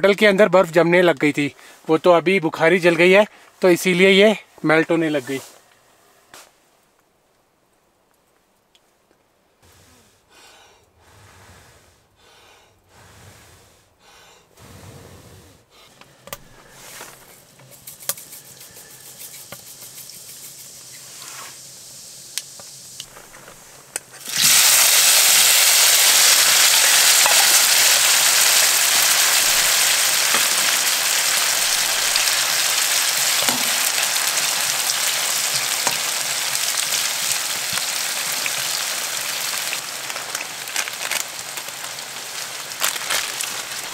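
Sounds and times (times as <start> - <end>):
soft breathy puffs: 1.5 - 1.9, 9.6 - 21.8, 23.1 - 23.9
vegetables sizzling in hot oil: 17.8 - 23.5, 24.2 - 43.9.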